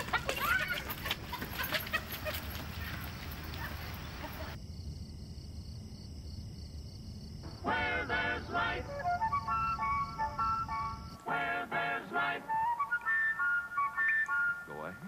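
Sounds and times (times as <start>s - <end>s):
running footsteps: 0.0s - 4.6s
street noise: 0.0s - 4.6s.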